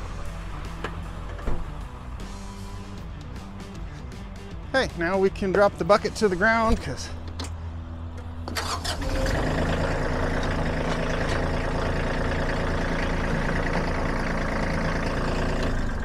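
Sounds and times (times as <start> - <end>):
tractor engine revving: 0.0 - 16.0
hydraulic whine: 6.7 - 16.0.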